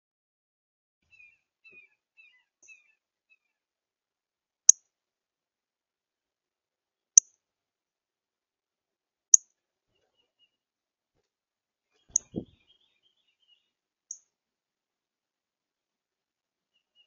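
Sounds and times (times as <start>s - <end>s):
bird chip notes: 12.1s - 12.6s.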